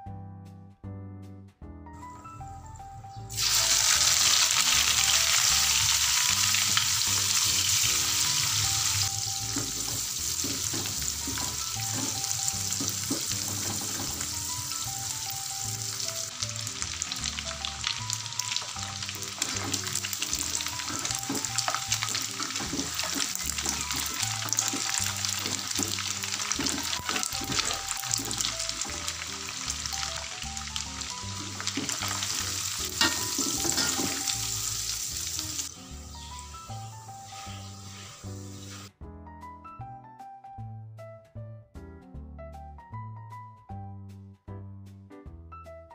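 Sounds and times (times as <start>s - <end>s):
fish sizzling in hot oil: 3.3s - 38.9s
metal spatula scraping a wok: 3.6s - 14.4s, 19.4s - 28.5s, 31.4s - 34.8s, 37.1s - 38.9s.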